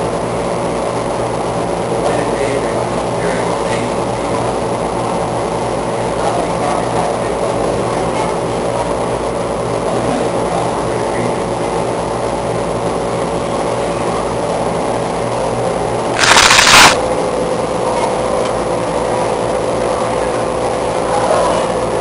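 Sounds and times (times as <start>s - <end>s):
whirring rumble with hum: 0.0s - 22.0s
loud hiss: 16.2s - 17.0s.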